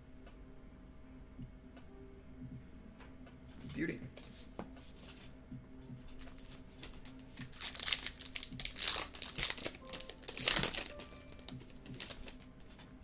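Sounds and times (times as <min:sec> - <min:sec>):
foil wrapper crinkling and tearing: 0:06.2 - 0:12.8.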